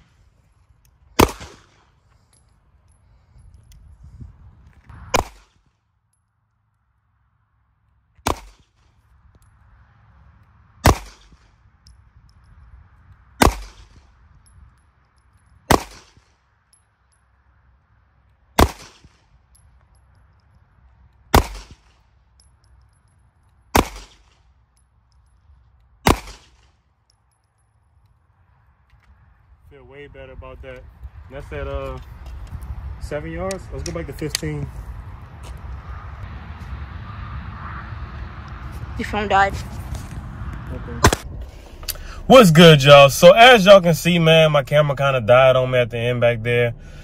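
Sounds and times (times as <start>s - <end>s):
pistol shots with echo: 1.2s - 1.9s, 5.1s - 5.4s, 8.2s - 8.6s, 10.8s - 11.4s, 13.4s - 14.0s, 15.7s - 16.2s, 18.6s - 19.1s, 21.3s - 21.9s, 23.7s - 24.3s, 26.0s - 26.6s, 41.0s - 41.3s.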